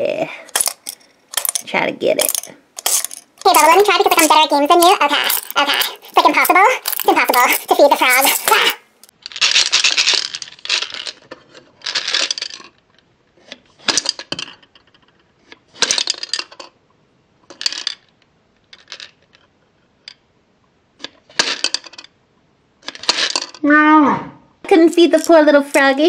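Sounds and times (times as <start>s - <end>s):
hard candies rattling in plastic: 0.5s - 13.0s, 24.7s - 25.9s.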